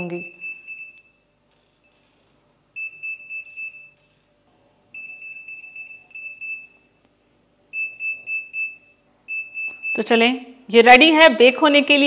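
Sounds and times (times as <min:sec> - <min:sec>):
oven beeper pulsing tone: 0:00.0 - 0:02.1, 0:02.7 - 0:04.2, 0:04.9 - 0:07.0, 0:07.7 - 0:10.2.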